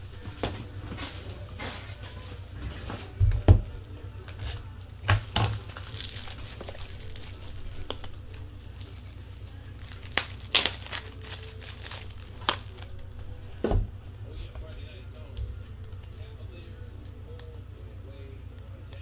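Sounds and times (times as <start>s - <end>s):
card pack wrappers crinkling: 3.8s - 13.5s.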